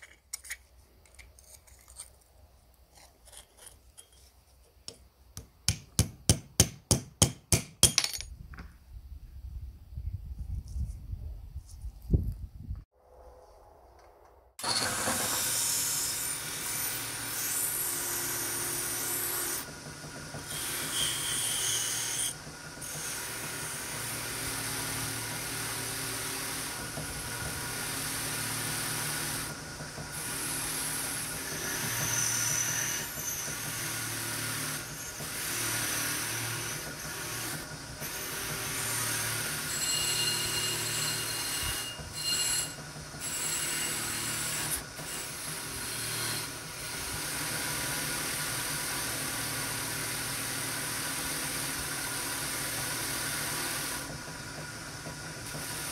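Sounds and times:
abrasive tool scraping: 0:00.0 - 0:04.9.

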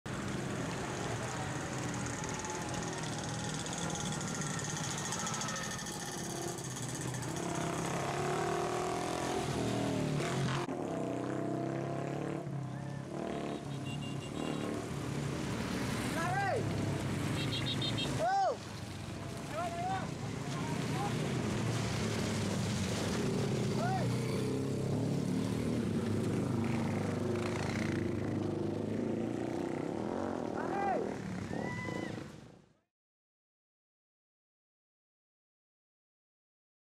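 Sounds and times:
small motorcycles riding past: 0:00.1 - 0:32.6
small motorcycle engine puttering: 0:01.8 - 0:08.0.

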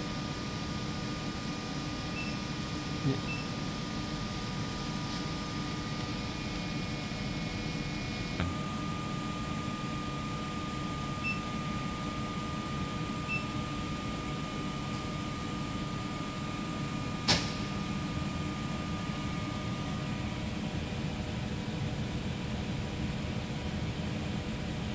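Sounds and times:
machine hum and fan noise: 0:00.0 - 0:24.9
sharp click: 0:17.2 - 0:17.6.

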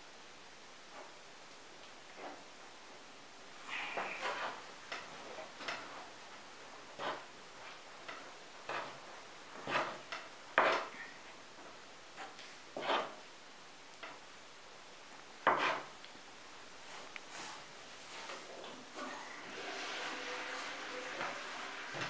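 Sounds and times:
fork scraping a wooden board: 0:03.7 - 0:04.6, 0:06.9 - 0:07.3, 0:08.7 - 0:09.0, 0:09.6 - 0:11.1, 0:12.2 - 0:13.2, 0:15.4 - 0:15.9.

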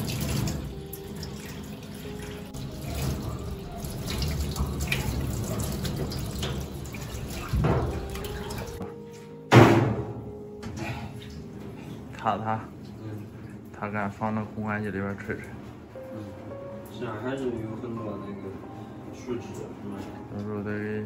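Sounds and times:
shower water running into sink: 0:00.0 - 0:08.9.

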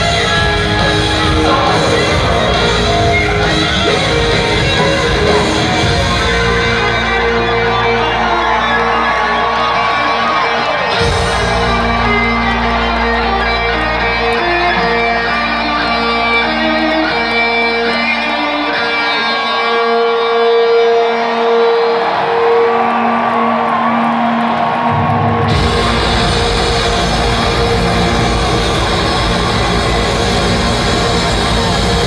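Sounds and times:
drums and cymbals crashing: 0:00.0 - 0:06.9, 0:25.5 - 0:32.0
live rock music: 0:00.0 - 0:32.0.

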